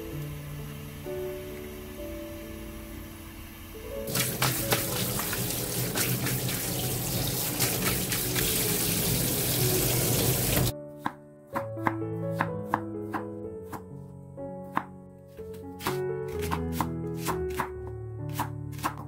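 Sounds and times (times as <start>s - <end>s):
tap water running into colander: 3.3s - 10.7s
knife cutting on wooden board: 15.8s - 17.7s.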